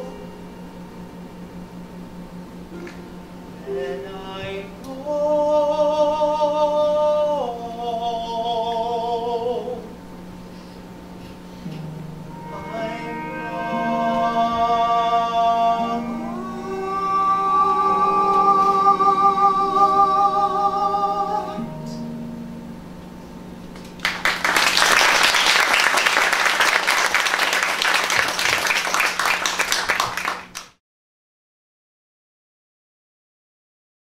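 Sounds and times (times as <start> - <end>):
person singing with vibrato: 0.0 - 0.6, 3.6 - 10.0, 12.3 - 22.5
instrumental accompaniment: 11.6 - 23.0
audience applause: 23.8 - 30.8.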